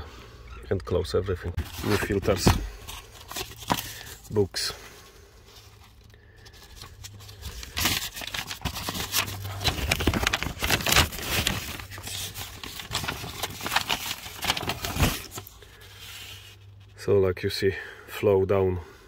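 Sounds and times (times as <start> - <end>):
plastic wrapping crinkling: 5.8 - 15.8.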